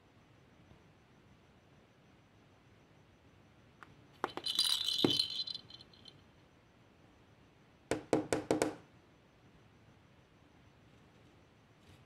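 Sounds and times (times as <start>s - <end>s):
plastic ball rattle toy: 4.2s - 6.1s.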